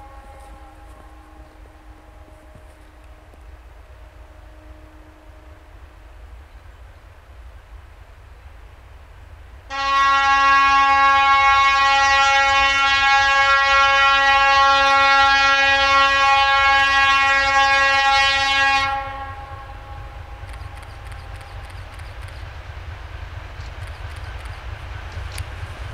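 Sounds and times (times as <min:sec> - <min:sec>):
locomotive horn blast: 0:00.0 - 0:06.3, 0:09.7 - 0:20.7.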